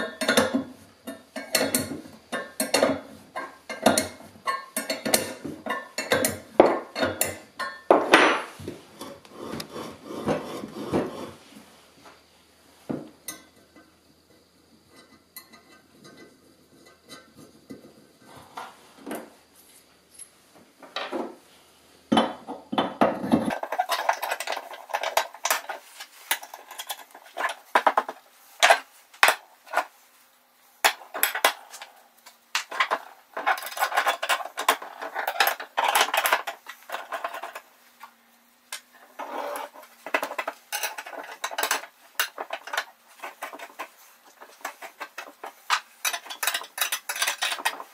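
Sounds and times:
metal tubing clinking and clattering: 0.0s - 9.1s, 13.2s - 14.0s, 14.9s - 18.0s, 22.9s - 29.9s, 30.8s - 37.8s, 38.7s - 47.9s.

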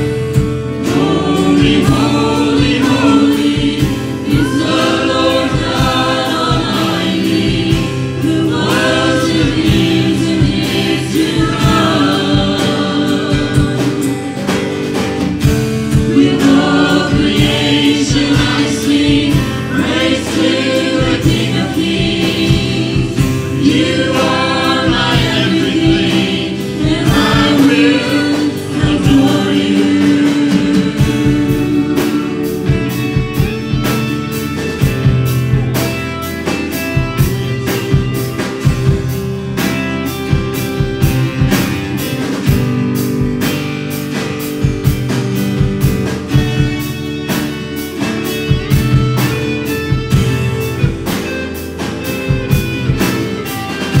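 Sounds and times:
group singing gospel song: 0.0s - 35.9s
instrumental accompaniment: 0.0s - 54.0s.

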